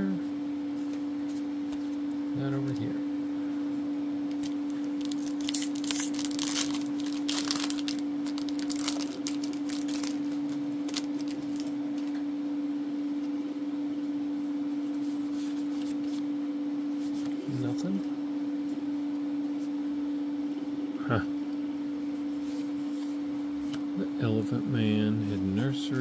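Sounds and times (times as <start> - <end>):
steady hum: 0.0 - 26.0
trading cards rustling and clicking: 4.3 - 12.2.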